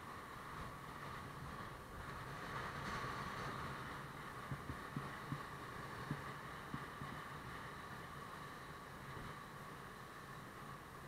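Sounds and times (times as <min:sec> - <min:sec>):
motorbike engine hum: 0:00.0 - 0:11.0
road noise: 0:00.0 - 0:11.0.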